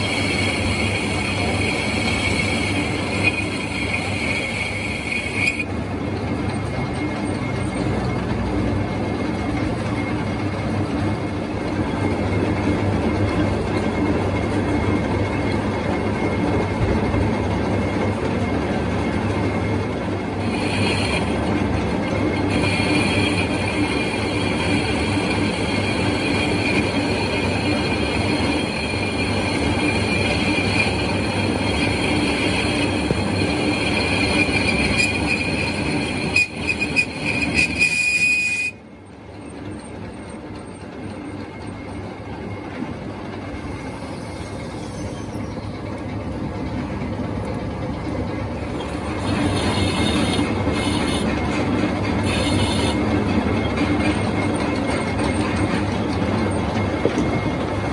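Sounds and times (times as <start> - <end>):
high squeal from cutting: 0.0 - 5.8, 20.4 - 38.8, 43.7 - 45.8, 48.7 - 51.5, 52.2 - 53.1
metal lathe cutting steel: 0.0 - 38.7, 48.2 - 57.9.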